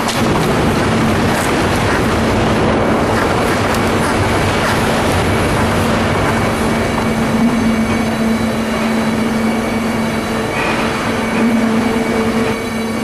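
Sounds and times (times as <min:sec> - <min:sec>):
constant low hum: 0:00.0 - 0:13.0
steady rumbling noise: 0:00.0 - 0:13.0.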